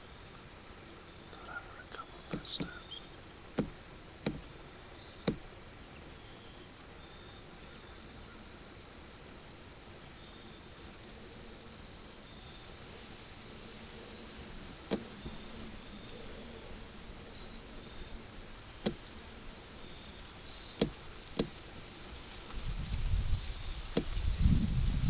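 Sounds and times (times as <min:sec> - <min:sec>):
insects trilling: 0:00.0 - 0:25.0
low rustling rumble: 0:20.9 - 0:25.0.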